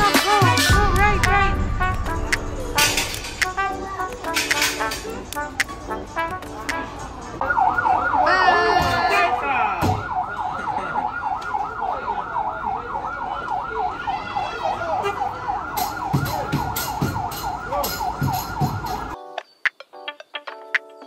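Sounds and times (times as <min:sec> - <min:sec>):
upbeat background music: 0:00.0 - 0:07.4
siren yelping: 0:07.4 - 0:19.2.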